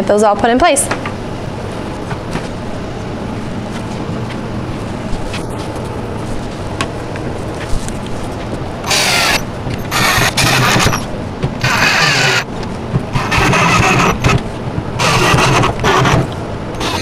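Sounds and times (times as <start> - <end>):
cordless drill driving screws: 8.9 - 11.0, 11.6 - 12.4, 13.2 - 14.3, 15.0 - 16.2, 16.8 - 17.0.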